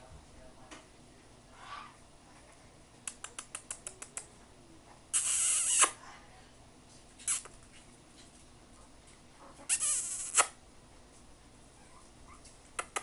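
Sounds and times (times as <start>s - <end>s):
puppy yipping: 11.8s - 12.5s.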